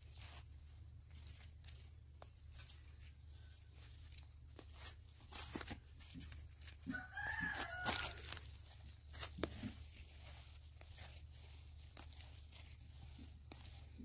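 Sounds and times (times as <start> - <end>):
leafy greens being pulled up: 0.0 - 14.0
rooster crowing: 6.8 - 8.5.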